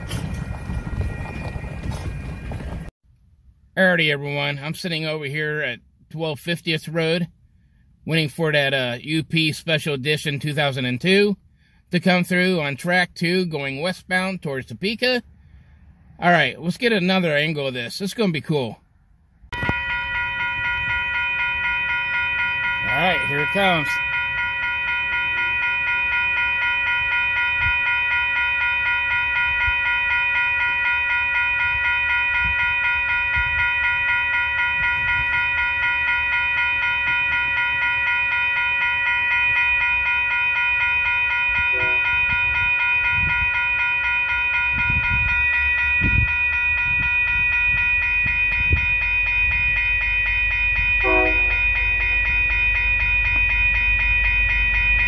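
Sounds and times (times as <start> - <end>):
railroad crossing bell ringing: 0.0 - 2.9, 19.5 - 55.0
train horn notes: 41.7 - 42.6, 51.0 - 52.2.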